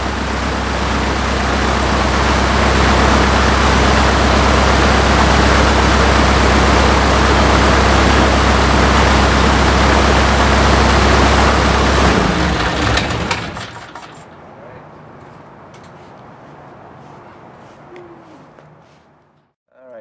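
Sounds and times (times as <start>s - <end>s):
aircraft engine running: 0.0s - 15.9s.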